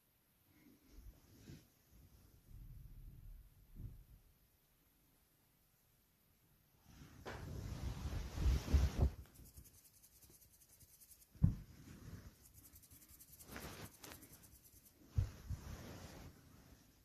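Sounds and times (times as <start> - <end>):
rustling on a shaggy rug: 6.8 - 17.0
soft low thumps: 11.4 - 11.8.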